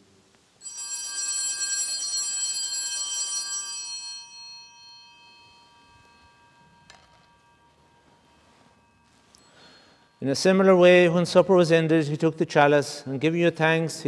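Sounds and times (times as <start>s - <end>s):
small bells ringing: 0.6s - 11.1s.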